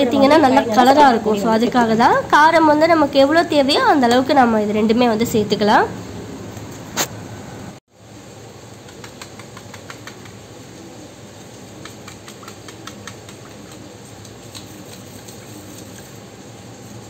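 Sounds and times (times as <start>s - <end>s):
whisk clicking in steel bowl: 8.8s - 10.4s, 11.8s - 16.1s.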